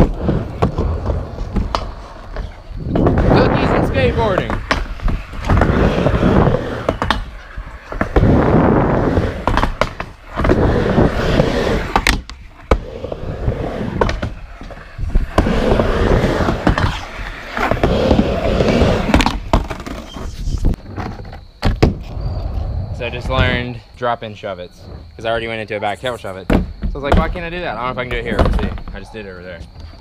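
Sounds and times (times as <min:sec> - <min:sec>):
skateboard clacks: 0:00.0 - 0:22.1
skateboard wheels rolling on ramp: 0:00.0 - 0:30.0.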